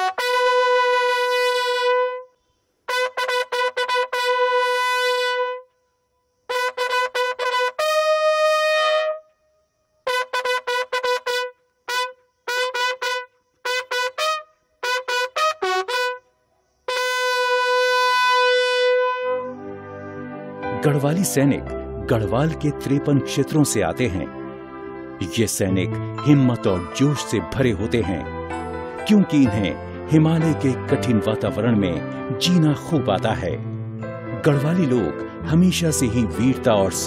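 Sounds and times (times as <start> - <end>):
bugle call: 0.0 - 2.3, 2.9 - 5.7, 6.5 - 9.2, 10.0 - 16.2, 16.9 - 19.6.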